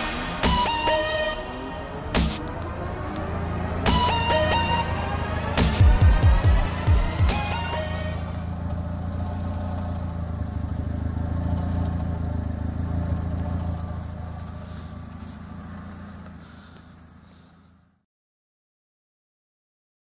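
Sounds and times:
car exhaust idling drone: 0:00.0 - 0:18.0.

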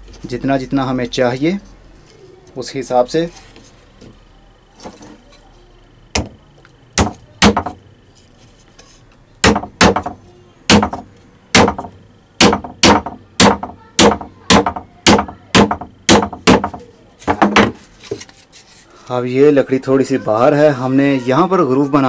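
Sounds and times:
hammer striking nails into wood: 0:06.2 - 0:06.4, 0:07.0 - 0:07.8, 0:09.4 - 0:17.8.

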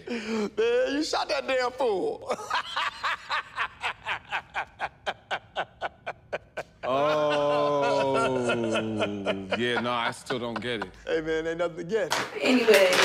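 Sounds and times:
snickering laugh: 0:02.4 - 0:11.0.

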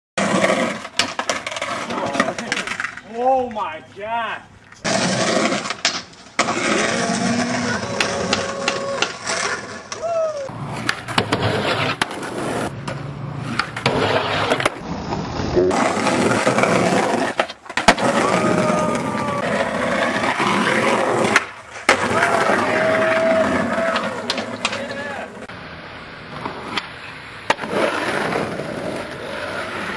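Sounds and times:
skateboard wheels rolling on concrete: 0:00.2 - 0:29.9
skateboard clacks and knocks: 0:04.9 - 0:10.1, 0:15.8 - 0:25.0.

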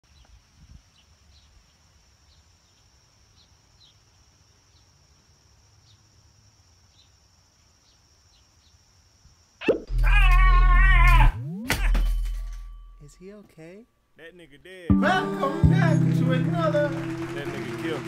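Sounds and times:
insect drone: 0:00.2 - 0:11.6.

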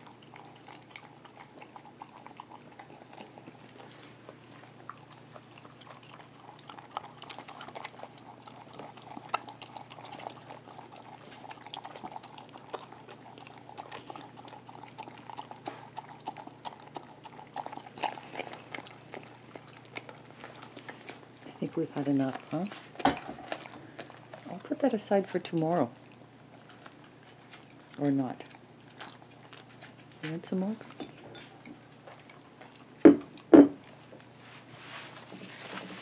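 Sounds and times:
dog licking glass cup: 0:00.0 - 0:25.5.

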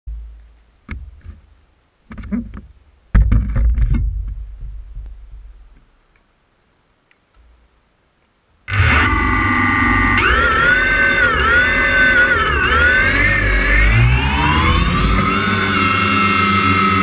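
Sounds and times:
quadcopter knocks and rattles: 0:02.1 - 0:05.8
low rumble: 0:03.7 - 0:05.8, 0:08.7 - 0:17.0.

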